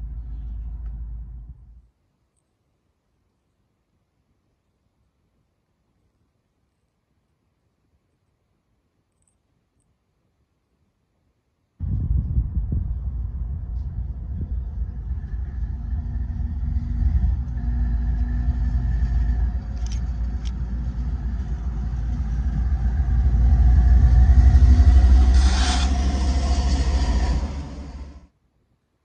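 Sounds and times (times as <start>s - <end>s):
diesel locomotive engine rumble: 0.0s - 1.8s, 11.8s - 28.3s
sharp clicks: 19.6s - 20.7s.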